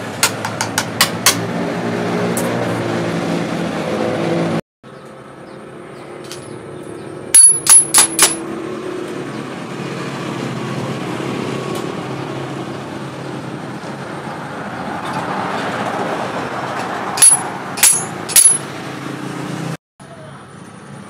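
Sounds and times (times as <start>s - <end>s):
metallic knocks with a ring: 7.4s - 8.4s, 17.2s - 18.7s.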